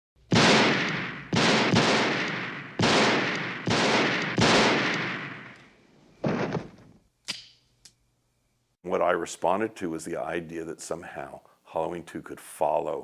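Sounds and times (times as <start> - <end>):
handgun shots ringing: 0.3 - 5.7.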